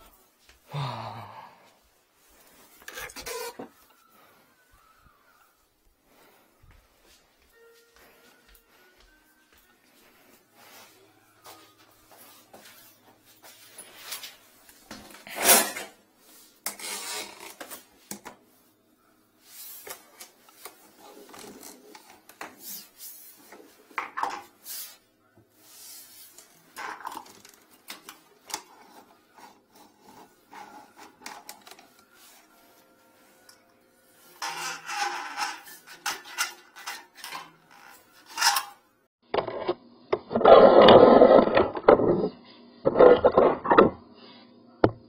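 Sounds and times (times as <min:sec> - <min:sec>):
cable rubbing and clattering: 0:34.4 - 0:38.8.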